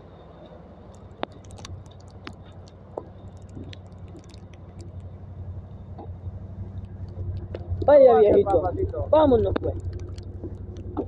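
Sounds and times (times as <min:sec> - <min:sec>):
quad engine idling: 0:00.0 - 0:11.0.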